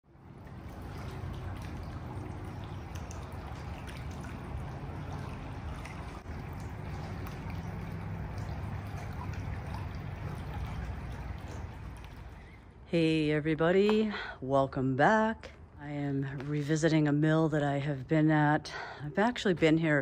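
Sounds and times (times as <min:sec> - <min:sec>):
stream water flowing: 0:00.1 - 0:12.9.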